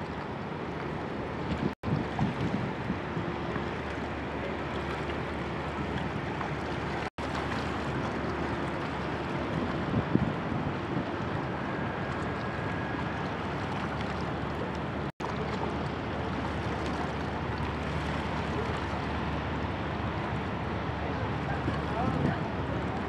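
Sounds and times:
motor barge droning: 0.0s - 23.0s
river water: 0.0s - 23.0s
wind on microphone: 1.2s - 3.9s, 4.8s - 15.0s, 21.5s - 23.0s.

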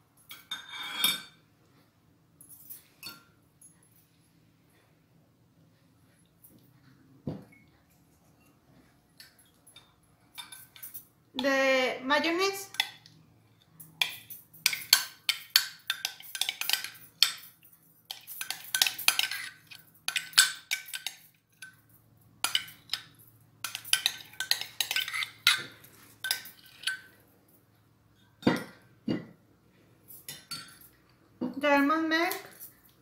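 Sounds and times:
metal spoon scraping glass: 0.3s - 1.4s, 18.1s - 21.8s, 22.4s - 27.2s.

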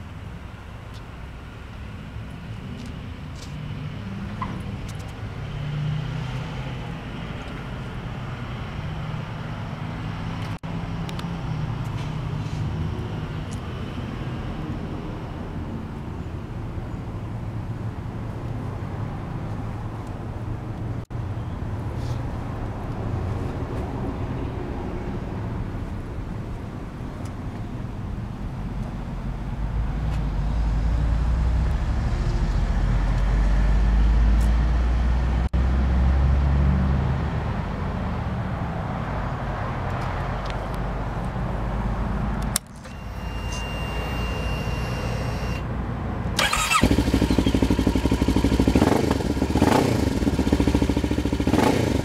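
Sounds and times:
motorcycle engine idling: 46.4s - 52.0s.

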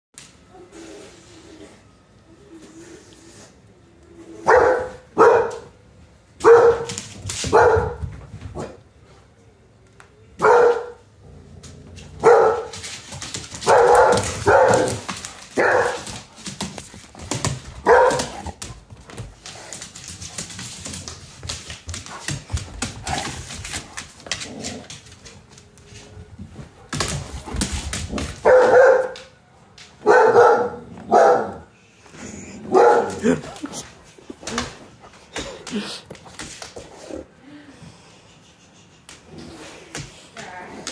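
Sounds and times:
dog barking: 4.4s - 5.7s, 6.4s - 8.0s, 10.4s - 11.0s, 12.2s - 12.7s, 13.6s - 15.0s, 15.6s - 16.0s, 17.8s - 18.5s, 28.4s - 29.3s, 30.0s - 31.7s, 32.7s - 33.3s.

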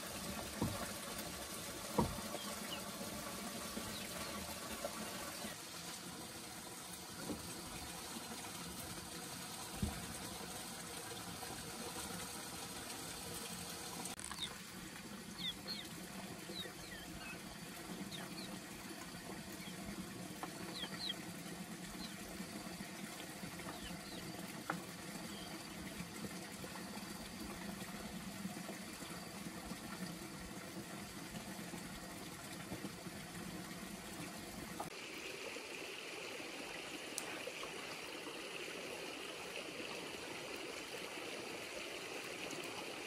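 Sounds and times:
water trickling and dripping: 0.0s - 43.0s
short high chirps and ticks: 14.2s - 14.6s.

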